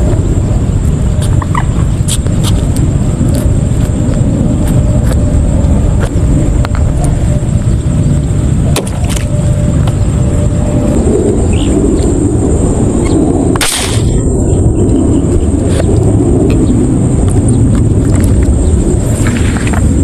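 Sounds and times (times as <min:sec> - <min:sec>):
steady low rumble: 0:00.0 - 0:20.0
airgun shot: 0:13.6 - 0:14.2.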